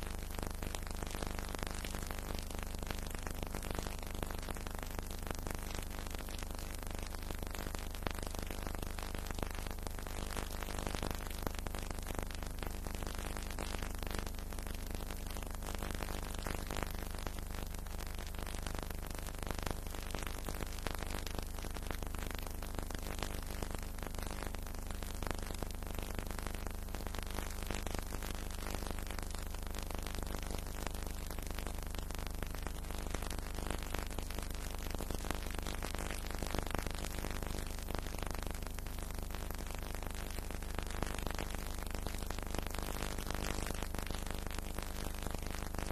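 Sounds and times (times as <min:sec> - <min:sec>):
faint crackle: 0:00.0 - 0:45.9
film soundtrack hiss: 0:00.0 - 0:45.9.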